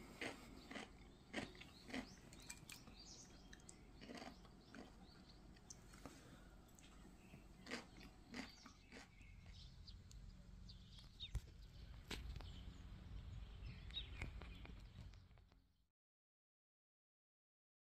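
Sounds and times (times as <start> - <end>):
bird chirps: 0.6 - 5.9, 6.6 - 15.5
low rumble: 9.3 - 15.4.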